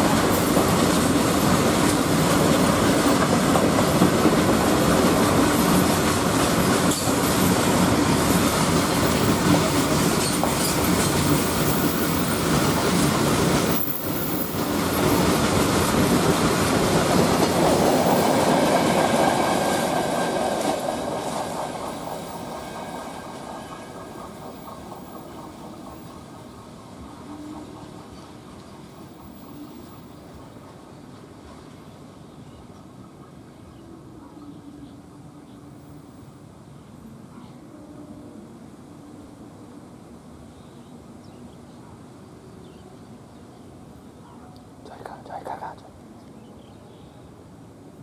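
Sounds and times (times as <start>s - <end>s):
freight train wheels clattering: 0.0s - 29.5s.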